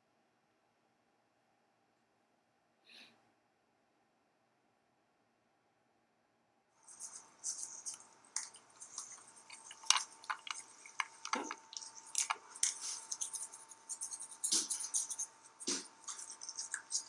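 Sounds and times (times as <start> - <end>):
toothbrush scrubbing teeth: 6.8 - 17.0.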